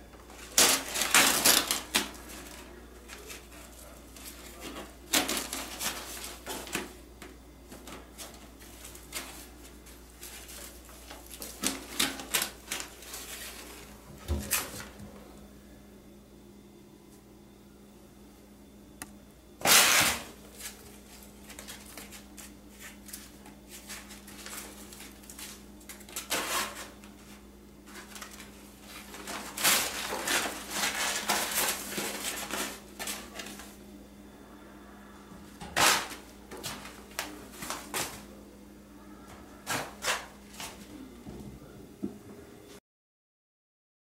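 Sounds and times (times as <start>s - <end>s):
steady low hum: 0.0s - 42.8s
cat tearing at shower curtain: 0.4s - 3.5s, 19.6s - 20.8s, 28.0s - 33.5s, 35.8s - 38.2s.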